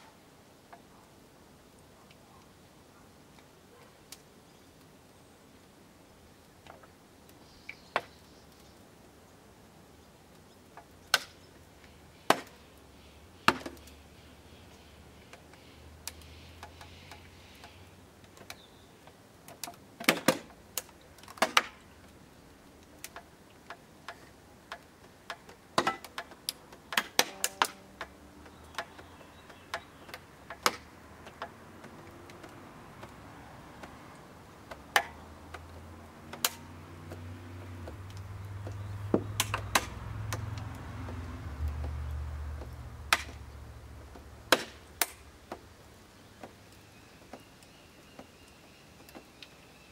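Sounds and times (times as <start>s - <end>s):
metal casing cracking and popping: 22.8s - 33.1s, 37.8s - 40.8s.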